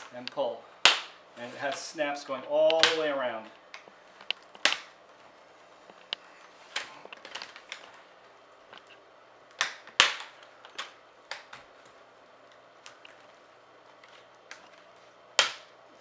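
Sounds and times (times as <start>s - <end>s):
plastic clips popping loose: 2.6s - 3.1s, 3.7s - 5.0s, 15.4s - 15.7s.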